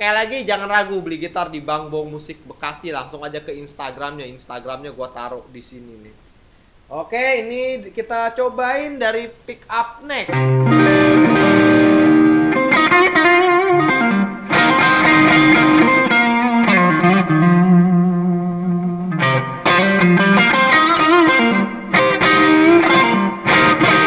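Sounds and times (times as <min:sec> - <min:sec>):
electric guitar lead: 0:10.3 - 0:24.0.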